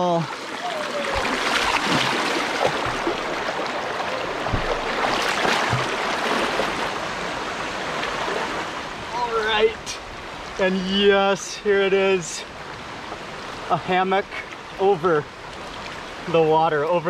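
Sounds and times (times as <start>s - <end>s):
person wading with soft splashes: 0.0s - 9.1s
river water rushing over rapids: 0.0s - 16.3s.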